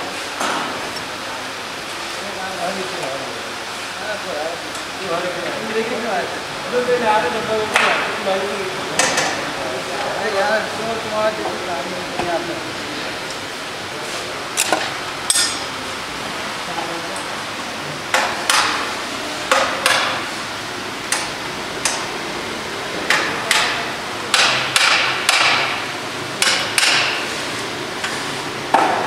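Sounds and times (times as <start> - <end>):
workshop background noise: 0.0 - 29.0
tools knocking: 23.1 - 25.7, 26.4 - 27.2.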